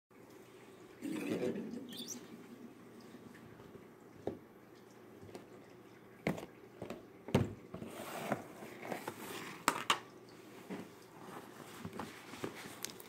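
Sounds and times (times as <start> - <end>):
soft rubbing and handling: 10.4 - 13.0.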